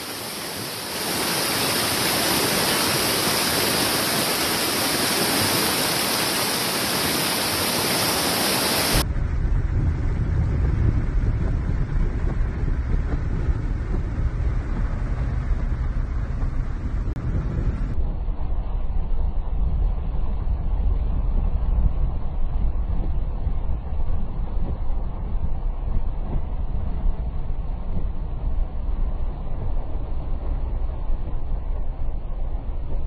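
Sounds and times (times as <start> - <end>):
car ploughing through floodwater: 0.0 - 9.0
floodwater rushing down creek: 0.0 - 9.0.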